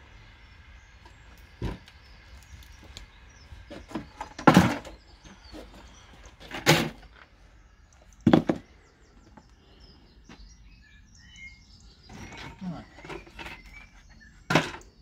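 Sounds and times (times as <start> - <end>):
loud knocks on metal bins: 4.0 - 4.9, 8.2 - 8.7
faint bird chirps: 7.4 - 15.0.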